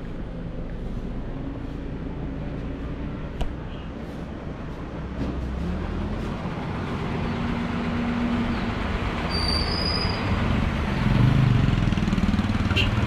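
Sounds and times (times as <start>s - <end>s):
diesel truck engines rumbling: 0.0s - 13.0s
short high-pitched squeak: 9.3s - 10.3s.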